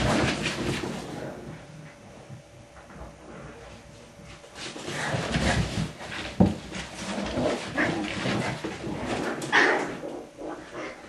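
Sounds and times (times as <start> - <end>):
puppies yapping and scuffling: 4.4 - 11.0.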